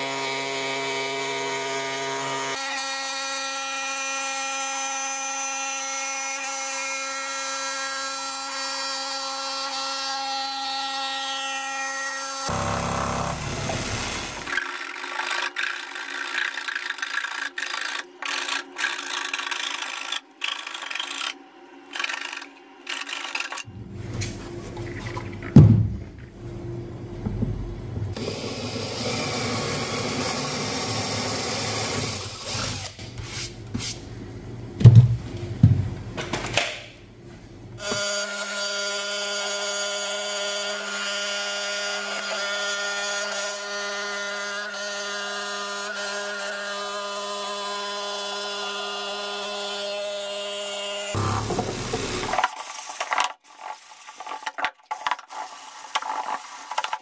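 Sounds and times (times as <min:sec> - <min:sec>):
jigsaw cutting wood: 0:12.4 - 0:23.7, 0:28.2 - 0:32.9, 0:51.0 - 0:52.5
cordless drill running: 0:12.5 - 0:14.6.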